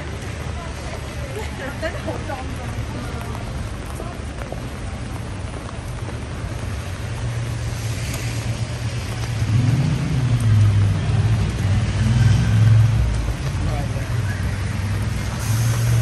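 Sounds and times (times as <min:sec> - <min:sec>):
rain hissing on wet street: 0:00.0 - 0:16.0
vehicle engine rumbling: 0:00.0 - 0:16.0.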